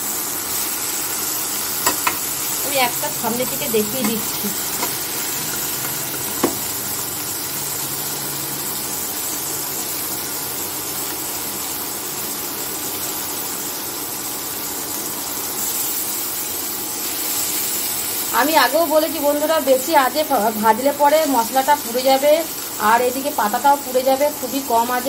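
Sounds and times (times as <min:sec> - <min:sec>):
oil sizzling in a pan: 0:00.0 - 0:25.0
metal spatula clinking on pan: 0:01.8 - 0:02.2.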